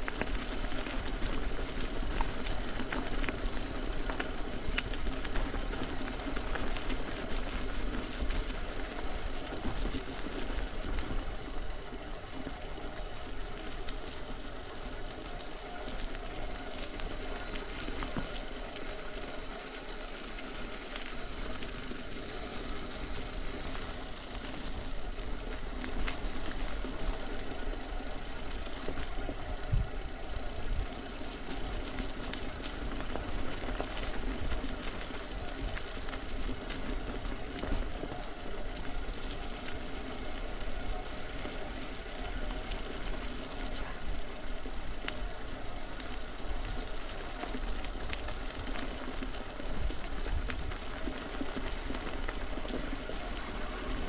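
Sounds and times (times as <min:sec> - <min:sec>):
small engine running: 0:00.0 - 0:54.0.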